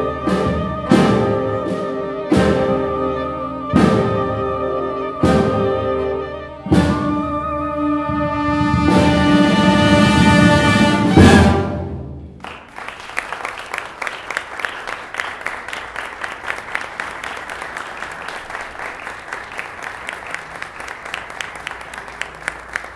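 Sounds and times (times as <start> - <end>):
audience applauding: 12.4 - 22.9.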